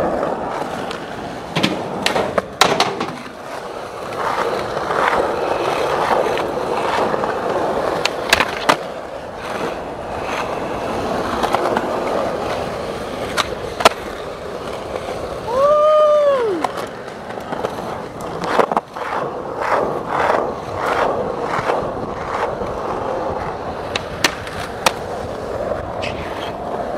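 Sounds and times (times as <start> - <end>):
skateboard clacks: 0.0 - 26.9
skateboard wheels rolling on asphalt: 0.0 - 26.9
person whooping: 15.4 - 16.8.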